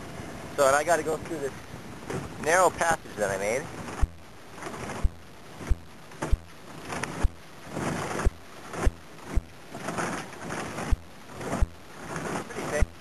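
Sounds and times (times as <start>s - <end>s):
hull scraping ice: 2.1s - 13.0s
boat hull thudding on ice: 3.8s - 13.0s.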